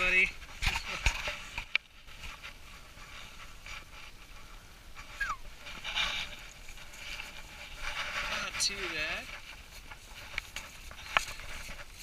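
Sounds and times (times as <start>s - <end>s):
scraping and handling noises: 0.4s - 12.0s
brief falling squeak: 5.2s - 5.4s.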